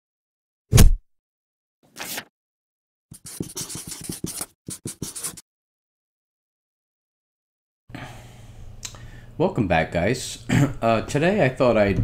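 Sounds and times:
rapid scratchy scribbling: 3.1s - 5.4s.

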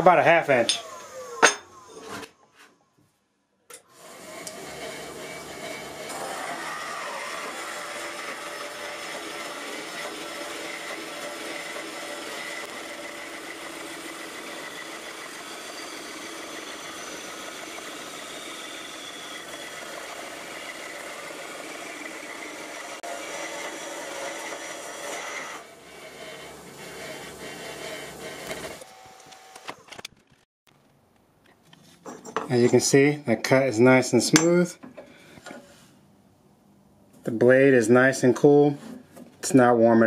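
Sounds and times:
band saw cutting steel: 0.0s - 2.3s, 3.9s - 29.1s.

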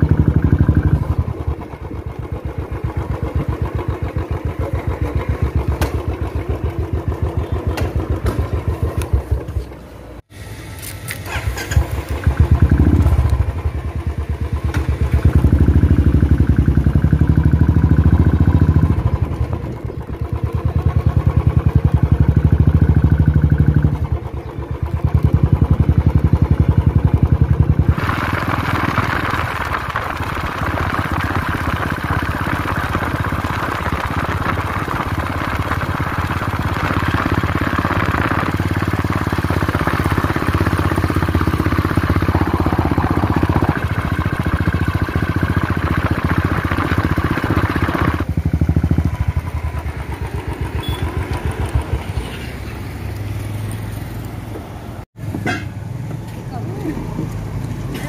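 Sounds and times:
wind or road noise hiss: 10.3s - 12.4s, 50.9s - 56.4s
vehicle engine revving: 10.7s - 24.2s, 25.1s - 55.1s.

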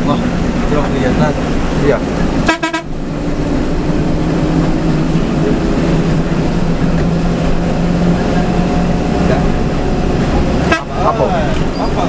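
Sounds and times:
bus diesel engine running: 0.0s - 12.0s
horn toot: 2.4s - 3.0s, 10.6s - 11.2s.

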